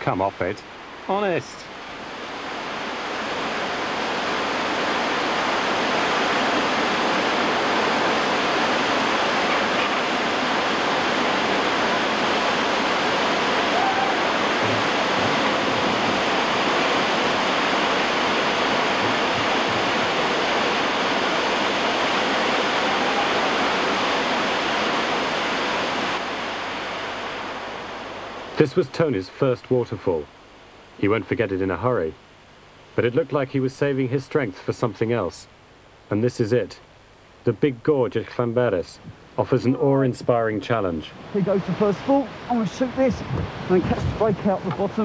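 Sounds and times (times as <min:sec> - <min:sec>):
waterfall rushing: 0:01.2 - 0:28.1, 0:41.0 - 0:45.0.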